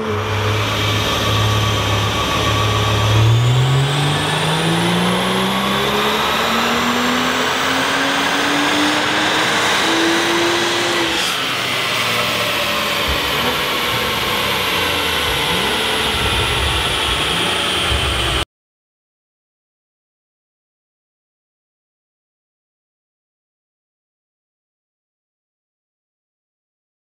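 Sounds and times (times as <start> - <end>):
car engine revving at full throttle: 0.0 - 18.4
dyno rollers winding down: 0.0 - 18.4.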